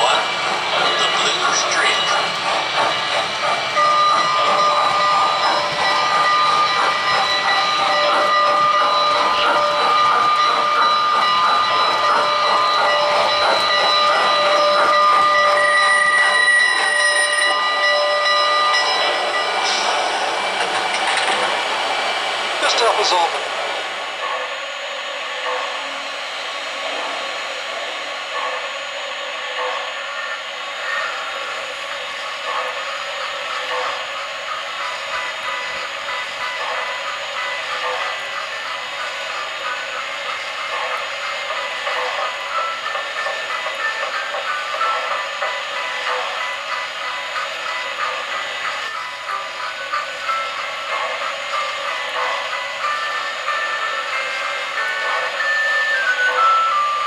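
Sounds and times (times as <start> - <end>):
steam locomotive chuffing: 0.0 - 57.0
steam hiss: 17.5 - 57.0.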